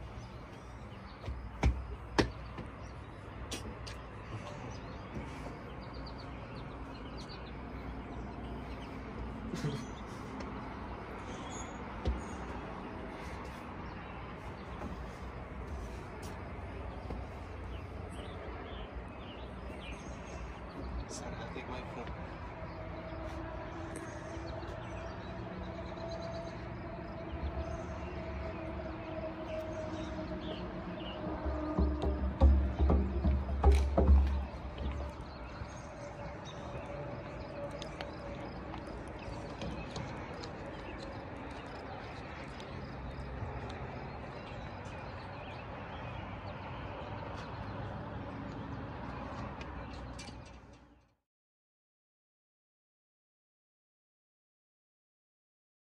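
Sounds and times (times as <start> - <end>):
small birds chirping: 0.0 - 51.1
footsteps on deck boards: 0.3 - 7.3, 9.9 - 17.9, 31.2 - 45.6.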